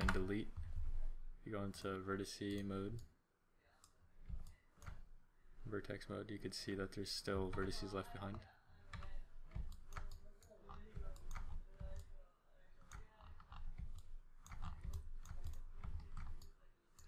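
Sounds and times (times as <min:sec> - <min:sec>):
computer mouse and keyboard clicks: 0:03.8 - 0:05.1, 0:07.5 - 0:12.2, 0:12.8 - 0:17.0.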